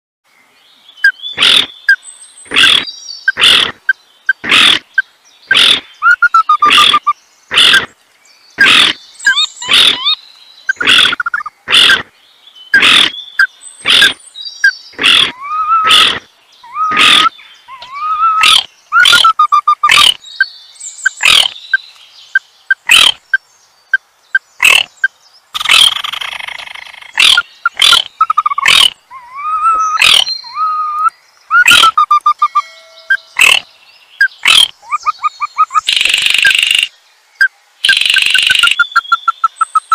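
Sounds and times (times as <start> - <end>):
loud sharp animal calls: 1.3 - 1.7, 2.5 - 8.0, 8.6 - 12.1, 12.8 - 13.2, 13.8 - 14.2, 14.9 - 20.2, 21.2 - 21.5, 22.7 - 23.2, 24.6 - 24.9, 25.6 - 32.7, 33.4 - 33.7, 34.3 - 36.9
high gliding call notes: 31.8 - 33.6.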